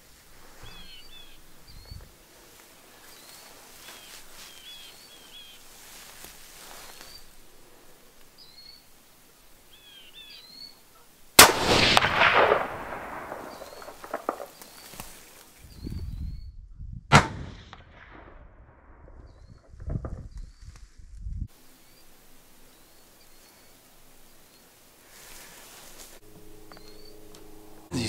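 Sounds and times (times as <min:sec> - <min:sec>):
small birds chirping: 0:00.0 - 0:11.3, 0:13.4 - 0:16.6, 0:21.7 - 0:27.4
rifle shot with echo: 0:11.4 - 0:14.8, 0:17.1 - 0:19.0.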